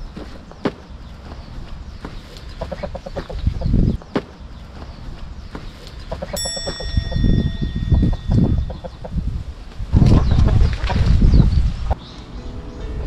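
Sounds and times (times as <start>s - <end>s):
chickens clucking: 2.0s - 4.9s, 5.5s - 7.0s, 8.0s - 9.4s, 10.0s - 12.0s
metallic ring: 6.4s - 9.2s.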